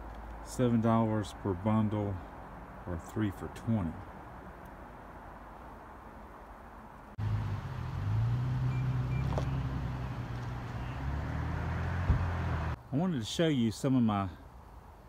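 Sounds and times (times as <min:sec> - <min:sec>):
faint outdoor background: 0:00.0 - 0:15.0
vehicle engine humming: 0:07.1 - 0:12.8.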